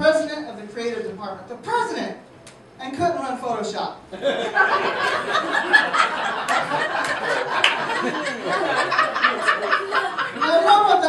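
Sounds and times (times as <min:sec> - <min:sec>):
audience laughing: 0:04.2 - 0:10.9.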